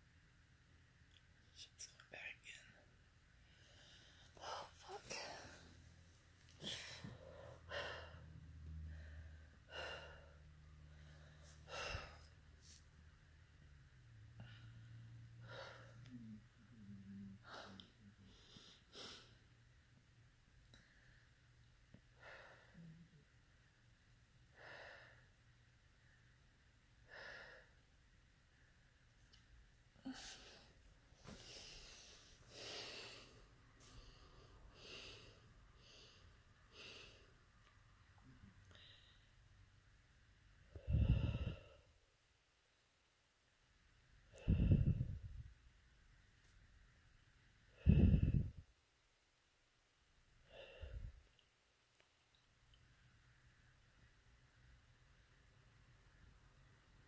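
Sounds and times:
person breathing faintly: 2.1 - 13.2, 14.2 - 19.5, 30.0 - 37.5, 38.3 - 39.5, 40.7 - 42.0, 44.3 - 45.6, 47.7 - 48.7, 50.4 - 51.4
person gasping: 40.8 - 41.8, 44.4 - 45.4, 47.8 - 48.6, 50.5 - 51.2.

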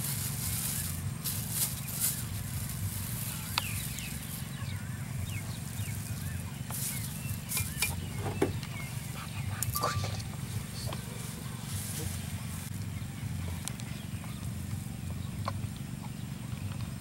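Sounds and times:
plastic sheet crinkling: 0.0 - 4.6
faint chirping calls: 0.4 - 17.0.

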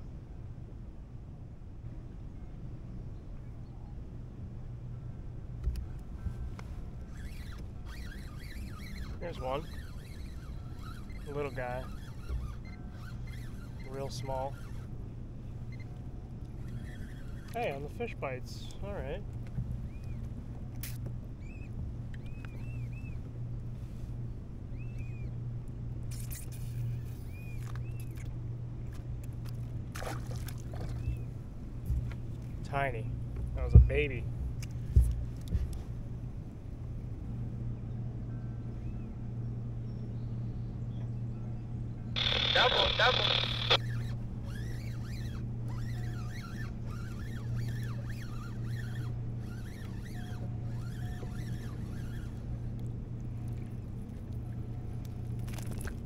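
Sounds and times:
steady low hum: 0.0 - 56.0
faint high chirping calls: 7.1 - 14.8, 16.6 - 17.6
clicks and rustles of handling fish: 26.1 - 31.1, 53.4 - 56.0
low engine drone: 36.0 - 56.0.

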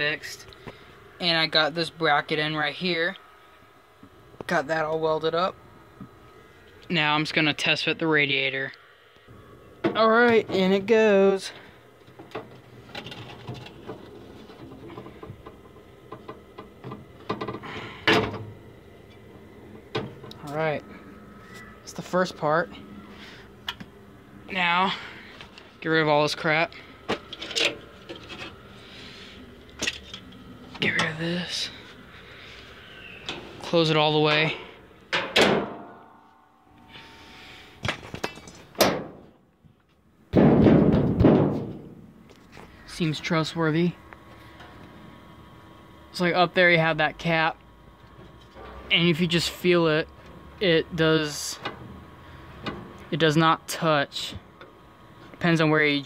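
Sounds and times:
fist thumping on metal car hood: 40.3 - 42.0
radiator knocking and clicking: 40.3 - 42.0.

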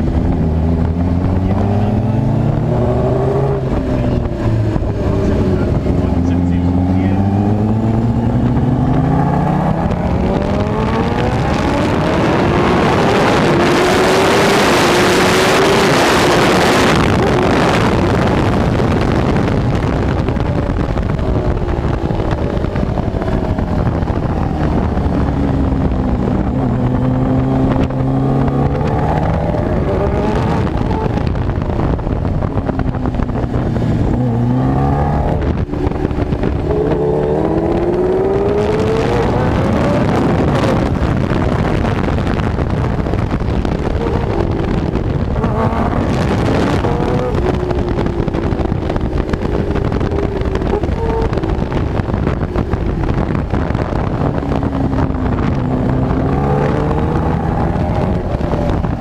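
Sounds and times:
motorcycle engine revving up: 0.0 - 59.0
wind on microphone: 0.0 - 59.0.

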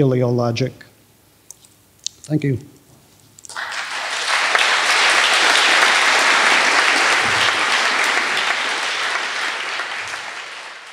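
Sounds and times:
large audience applauding: 3.4 - 10.9.

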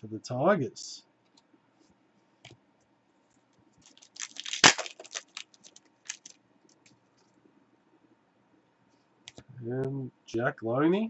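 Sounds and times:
foil wrapper crinkling: 3.8 - 6.4.

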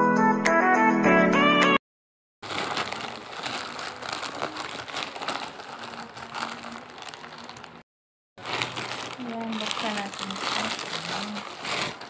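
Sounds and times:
plastic mailer bag crinkling: 2.4 - 7.8, 8.4 - 12.0.

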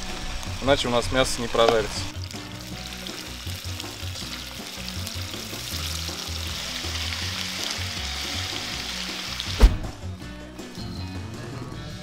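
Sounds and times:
food sizzling in frying pan: 0.0 - 9.6.

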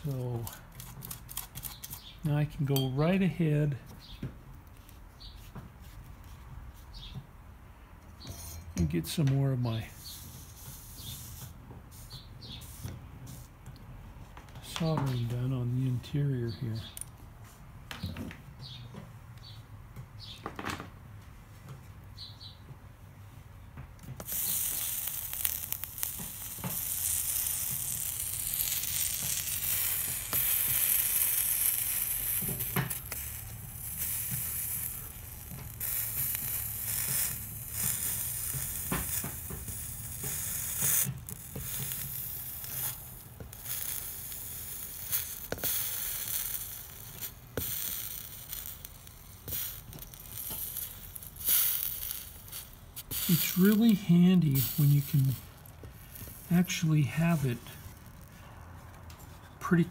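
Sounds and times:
solder sizzling: 8.3 - 13.6, 24.2 - 58.5.

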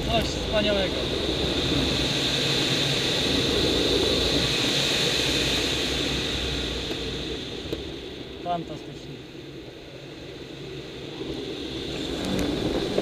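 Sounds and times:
low rumble: 0.0 - 13.0
rushing airflow hiss: 0.0 - 13.0.

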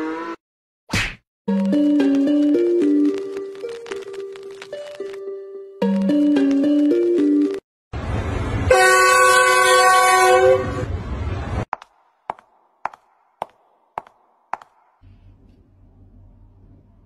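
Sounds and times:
train horn blast: 8.5 - 11.1
sharp evenly spaced ticks: 11.7 - 15.0.

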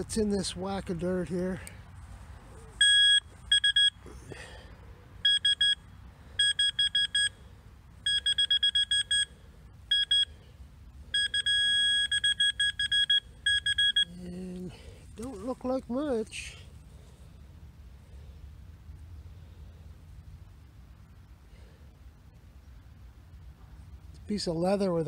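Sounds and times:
metal detector beeping: 2.8 - 4.0, 5.2 - 5.8, 6.4 - 7.4, 8.0 - 10.4, 11.1 - 14.3
metal detector held tone: 2.8 - 4.0, 5.2 - 5.8, 6.4 - 7.3, 8.1 - 9.3, 9.9 - 10.3, 11.2 - 14.3.

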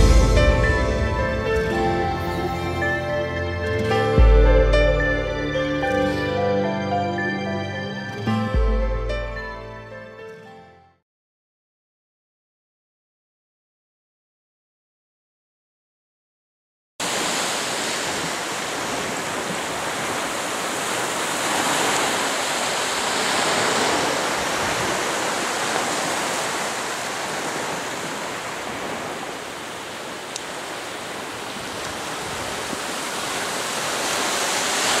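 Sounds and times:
small waves breaking on beach: 17.0 - 35.0.

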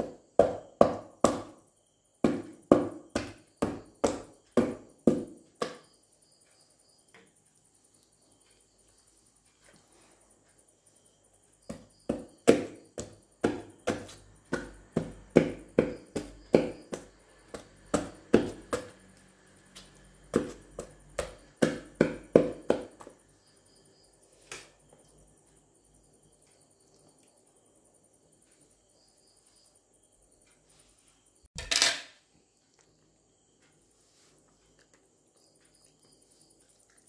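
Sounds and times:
knife chopping bone on wooden board: 11.7 - 19.0.

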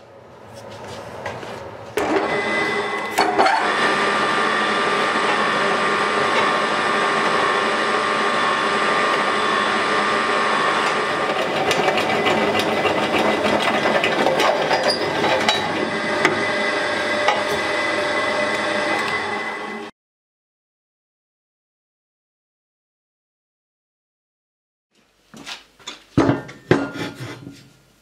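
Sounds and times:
pillar drill motor hum: 1.9 - 19.9
drill bit scraping steel: 10.7 - 19.8.

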